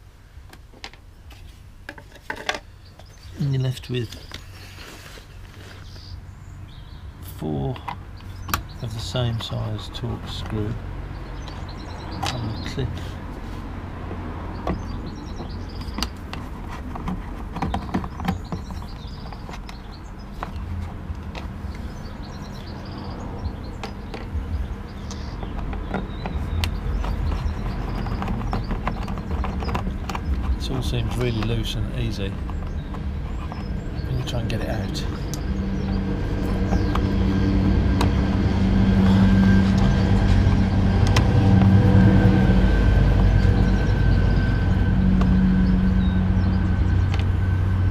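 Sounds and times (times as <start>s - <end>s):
birds chirping: 0.0s - 47.9s
vehicle engine humming: 0.0s - 47.9s
low rumble: 20.9s - 47.9s.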